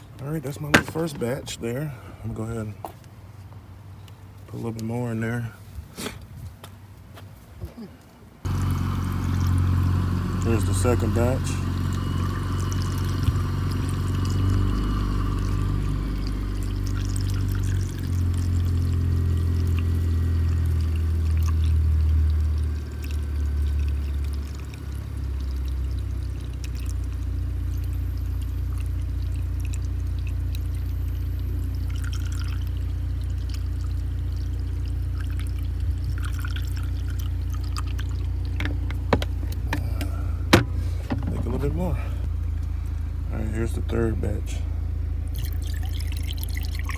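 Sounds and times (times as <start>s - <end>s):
liquid pouring from bottle: 11.9s - 40.2s, 45.3s - 46.9s.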